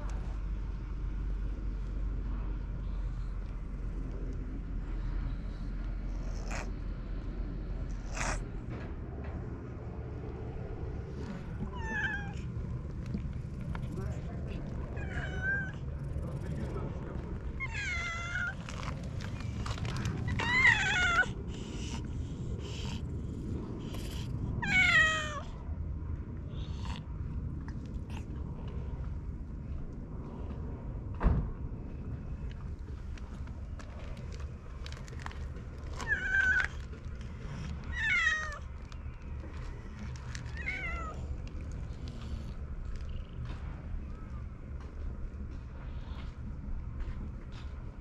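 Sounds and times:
cat meowing: 11.7s - 12.4s, 15.0s - 15.8s, 17.6s - 18.6s, 20.3s - 21.3s, 24.6s - 25.5s, 36.0s - 36.8s, 37.9s - 38.6s, 40.5s - 41.2s.

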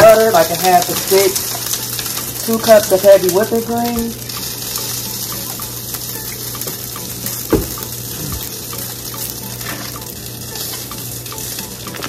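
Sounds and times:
butter and cream sizzling: 0.0s - 12.0s
knock: 7.5s - 7.8s.

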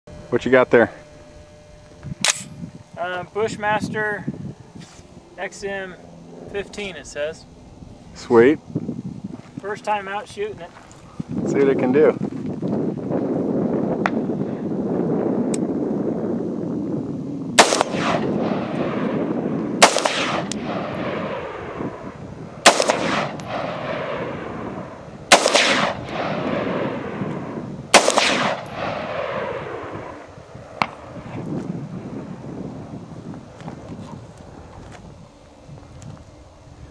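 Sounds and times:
rifle shots with rolling echo: 17.6s - 31.4s.

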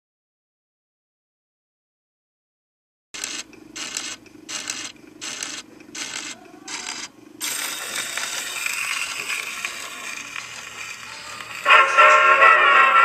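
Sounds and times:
phonograph needle scratching: 3.2s - 11.7s
record surface noise hiss: 3.2s - 13.0s.

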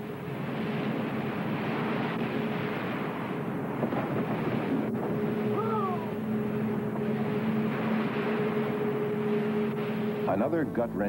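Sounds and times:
wind noise: 0.0s - 10.3s
boat engine humming: 0.0s - 11.0s
rushing surf: 0.0s - 11.0s.

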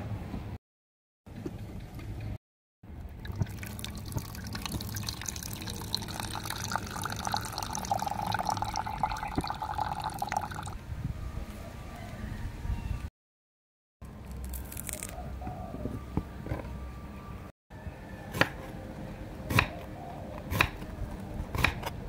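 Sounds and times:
water pouring into clay pot: 3.2s - 10.8s.

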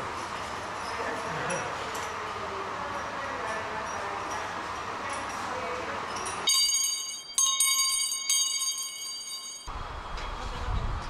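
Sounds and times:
metal bell chime: 6.1s - 9.7s.

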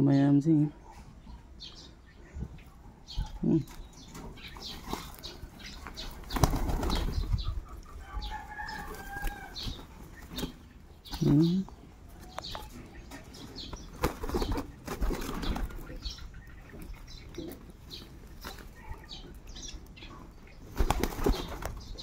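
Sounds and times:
pigeons flapping wings: 5.8s - 7.4s, 13.8s - 15.8s, 20.7s - 22.0s.

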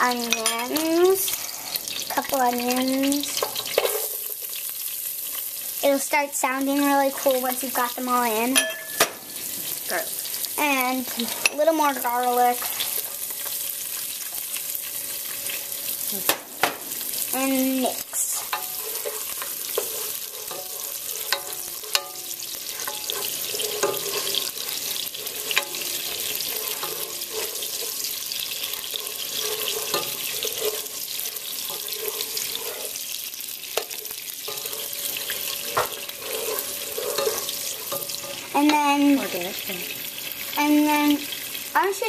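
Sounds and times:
onions sizzling in oil: 0.0s - 42.0s.

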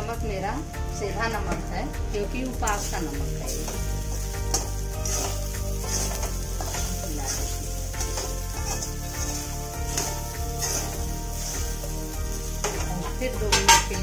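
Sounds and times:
food sizzling in a pan: 0.0s - 14.0s
spatula scraping a steel pan: 3.6s - 11.7s.

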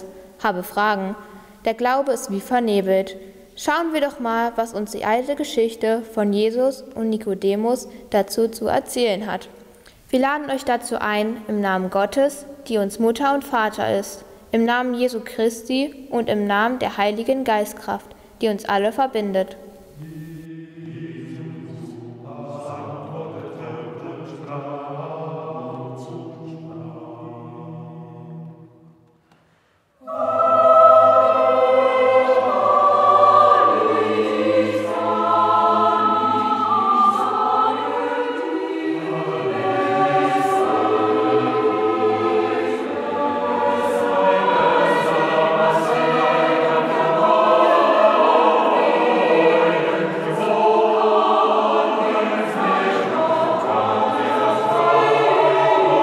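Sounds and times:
choir singing: 0.0s - 1.2s, 19.8s - 29.1s, 30.0s - 56.0s.

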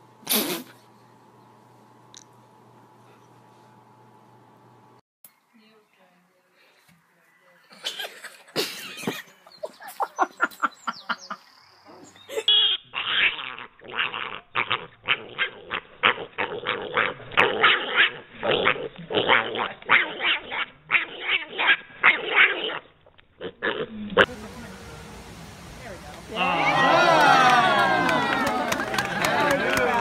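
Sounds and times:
piglet squealing: 12.4s - 24.3s.

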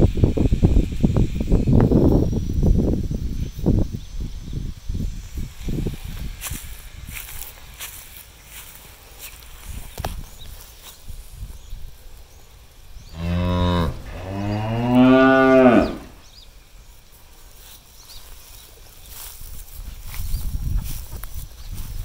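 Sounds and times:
cow mooing: 13.1s - 16.2s.

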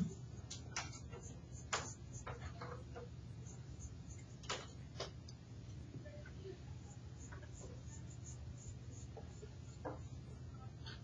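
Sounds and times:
pencil scratching on paper: 0.8s - 4.4s, 6.8s - 10.3s.

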